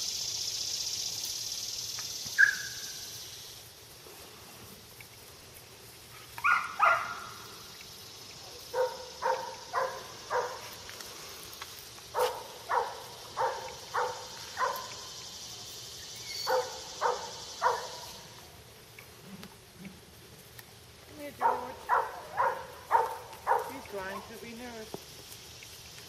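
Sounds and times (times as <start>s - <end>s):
high insect buzz: 0.0s - 26.0s
dog barking: 2.4s - 2.8s, 6.4s - 7.4s, 8.7s - 10.7s, 12.2s - 15.0s, 16.4s - 18.1s, 21.4s - 23.9s.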